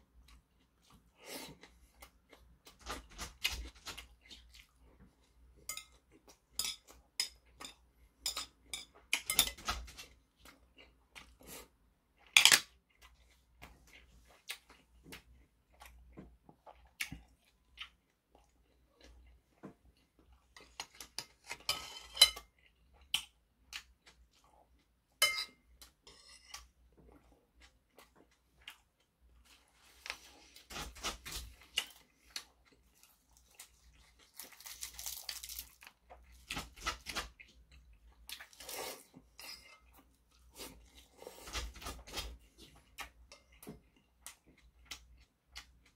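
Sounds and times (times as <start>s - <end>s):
man chewing food: 0.0s - 45.9s
chopsticks clinking on bowls: 5.7s - 6.0s.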